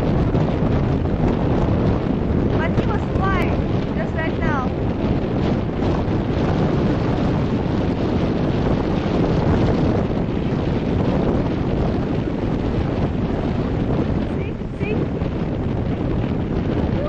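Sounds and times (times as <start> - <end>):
surf breaking on shore: 0.0 - 17.0
wind buffeting microphone: 0.0 - 17.0.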